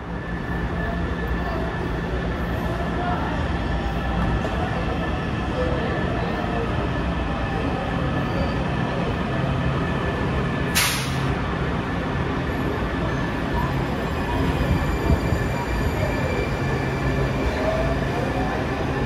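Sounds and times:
rising train whines: 0.0 - 19.0
subway train rumble: 0.0 - 19.0
short hiss: 10.8 - 11.3.

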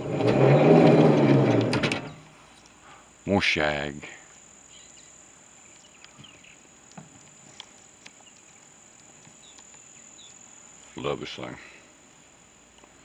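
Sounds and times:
crickets trilling: 0.0 - 13.0
faint clicks: 5.7 - 9.9.

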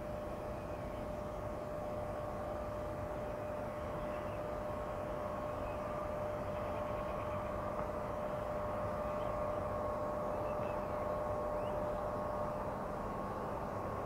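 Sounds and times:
machinery drone with whine: 0.0 - 14.0.

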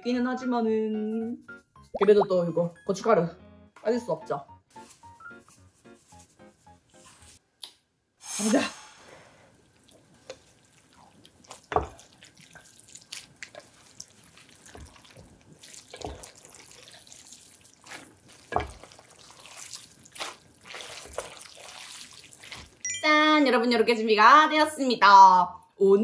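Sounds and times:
chopsticks mixing sticky noodles: 9.7 - 22.8.

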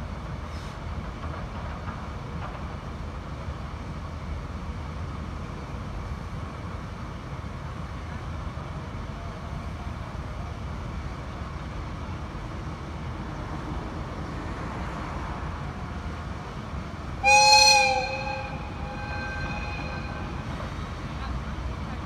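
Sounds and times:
diesel locomotive engine rumble: 0.0 - 22.0
locomotive horn blast: 17.2 - 20.7.

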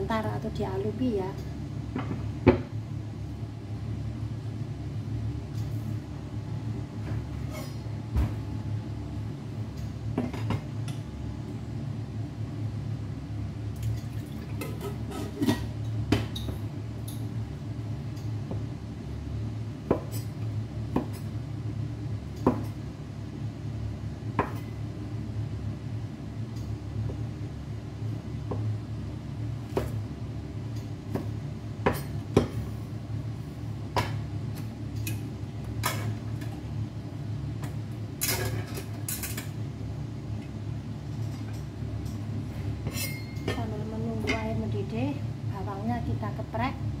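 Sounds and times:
steady low hum: 0.0 - 47.0
utensils and dishes clinking: 14.0 - 16.5, 42.9 - 43.6.

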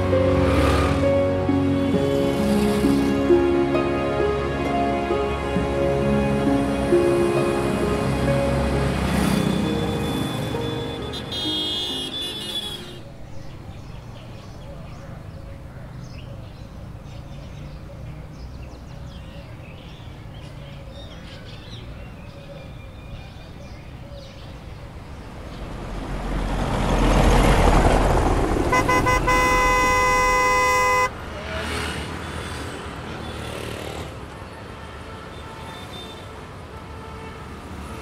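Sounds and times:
vehicle rushing past: 0.0 - 3.6, 6.6 - 11.3, 24.9 - 33.1
road traffic rumbling: 0.0 - 38.0
vehicle horn: 9.2 - 13.1, 28.7 - 31.2, 34.8 - 38.0.

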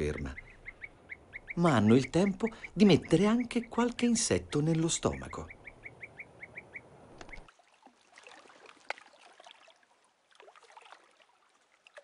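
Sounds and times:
faint chirps and clicks: 0.1 - 7.5
bird calls short clipped notes: 5.1 - 7.5.

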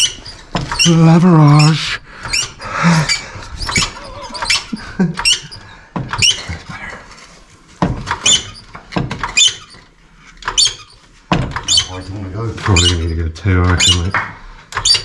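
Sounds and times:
trolley jack squeaking: 0.0 - 6.7, 8.1 - 15.0.

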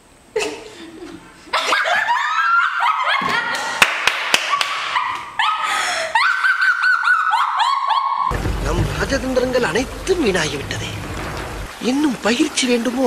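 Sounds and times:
high-pitched hysterical laughter: 0.4 - 8.3.

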